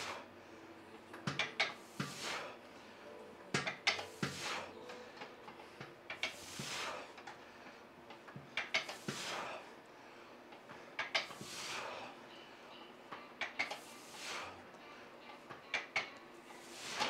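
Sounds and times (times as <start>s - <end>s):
exercise machine metal clacks: 1.1s - 2.2s, 3.5s - 7.4s, 8.1s - 9.2s, 11.0s - 11.4s, 13.4s - 13.8s
exercise machine sliding rush: 1.3s - 2.6s, 3.6s - 5.3s, 6.1s - 7.8s, 8.6s - 9.7s, 11.1s - 12.2s, 13.6s - 14.6s, 16.5s - 17.0s.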